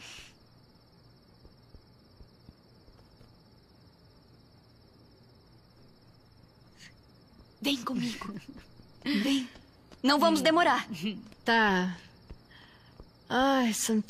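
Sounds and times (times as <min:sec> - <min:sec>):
short hiss: 0:00.0 - 0:00.4
crickets chirring: 0:00.0 - 0:14.0.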